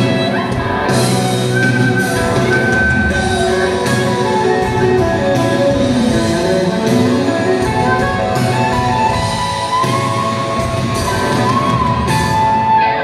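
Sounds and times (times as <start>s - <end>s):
drum kit: 0.0s - 13.0s
electric guitars: 0.0s - 13.0s.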